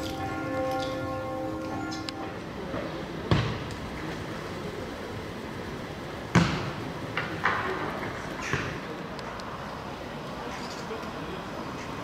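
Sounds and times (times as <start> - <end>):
city street hum: 0.0 - 12.0.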